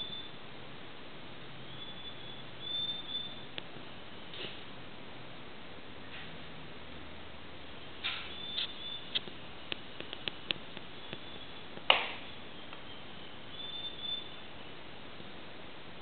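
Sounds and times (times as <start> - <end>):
faint high-pitched chirps: 0.0 - 0.4, 1.7 - 3.5, 7.8 - 9.2, 10.9 - 14.8
background hiss: 0.0 - 16.0
small sharp clicks: 8.0 - 12.8.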